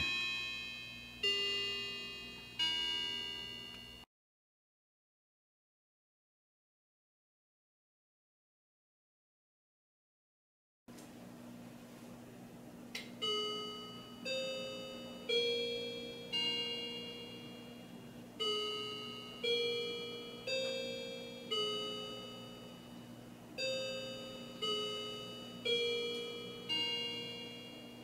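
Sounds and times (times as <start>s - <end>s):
clock chime bell notes: 0.0s - 4.1s, 13.2s - 28.0s.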